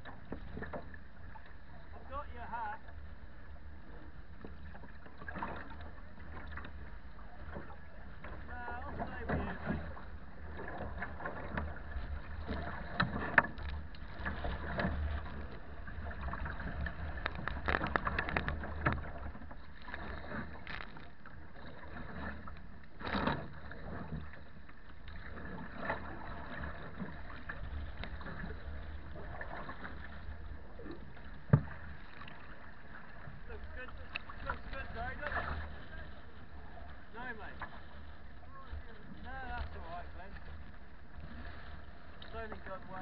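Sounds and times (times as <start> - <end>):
choppy water splashing: 0.0 - 43.0
sharp knocks on kayak: 31.5 - 31.8.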